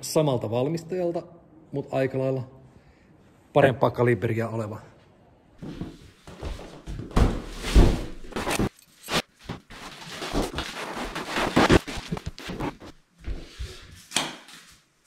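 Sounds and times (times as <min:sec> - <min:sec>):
box thumping on wooden floor: 0:06.9 - 0:08.5.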